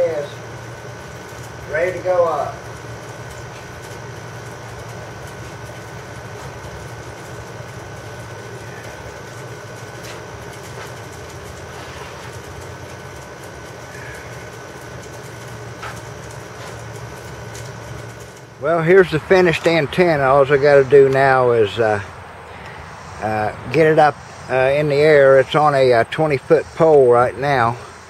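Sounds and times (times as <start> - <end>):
faint high whine: 0.0 - 28.0
mechanical hum: 0.0 - 28.0.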